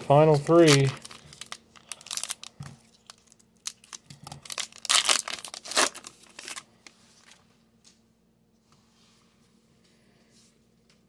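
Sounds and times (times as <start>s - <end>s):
wrapper tearing and crinkling: 0.3s - 6.7s.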